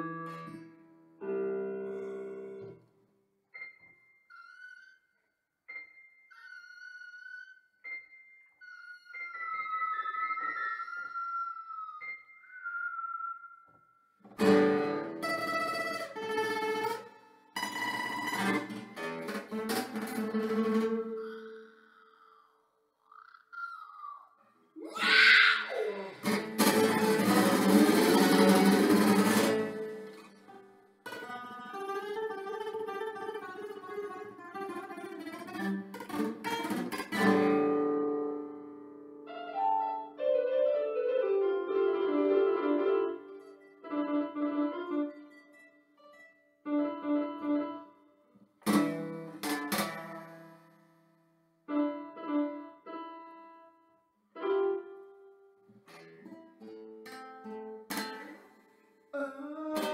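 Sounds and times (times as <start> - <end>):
classical guitar playing: 0.0 - 2.8, 14.3 - 21.5, 26.1 - 53.7, 54.4 - 58.8, 59.6 - 59.9
nylon-string guitar strummed chords: 26.2 - 39.0, 48.6 - 50.7
electronic keyboard notes: 39.3 - 45.2.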